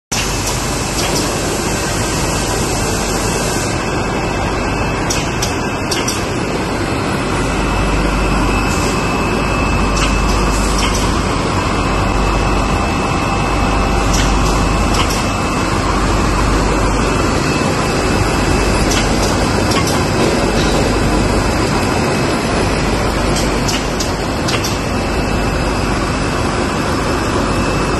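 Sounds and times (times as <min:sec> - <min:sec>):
machine mechanical clatter: 0:00.1 - 0:03.0, 0:05.0 - 0:06.5, 0:08.5 - 0:11.6, 0:13.4 - 0:25.6.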